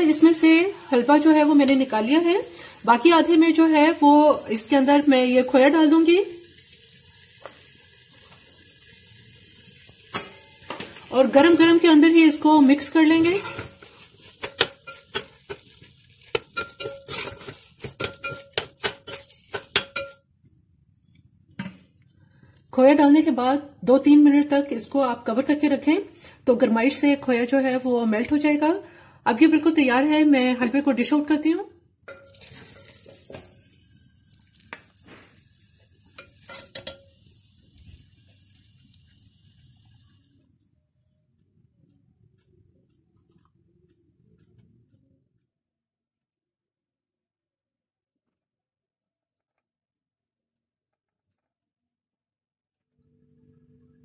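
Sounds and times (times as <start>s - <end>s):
metal spoon scraping pot: 10.8s - 20.2s, 32.1s - 33.5s, 36.2s - 37.1s.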